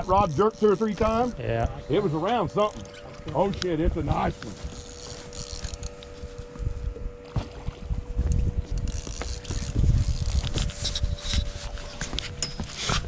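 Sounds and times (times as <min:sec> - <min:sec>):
fishing reel ratcheting and clicking: 0:00.0 - 0:01.4, 0:02.0 - 0:06.2, 0:08.8 - 0:11.7.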